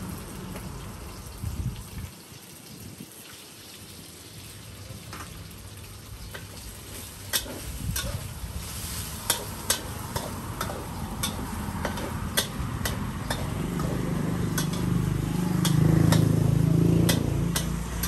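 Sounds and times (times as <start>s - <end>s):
hot oil sizzling: 0.0s - 18.0s
metal spatula scraping wok: 6.9s - 18.0s.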